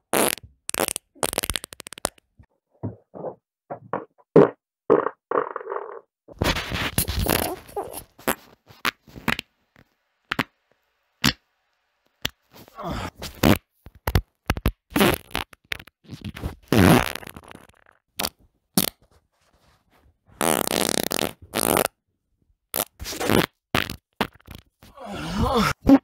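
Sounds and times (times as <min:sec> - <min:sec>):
person farting: 0:00.1 - 0:02.2, 0:02.8 - 0:09.4, 0:13.1 - 0:19.0, 0:20.4 - 0:22.0, 0:22.7 - 0:26.0.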